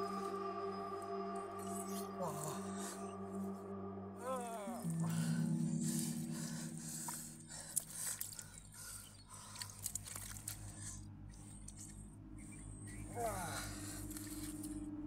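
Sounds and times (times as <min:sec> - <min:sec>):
faint low hum: 0:00.0 - 0:15.0
hands squelching in wet mud: 0:04.8 - 0:14.8.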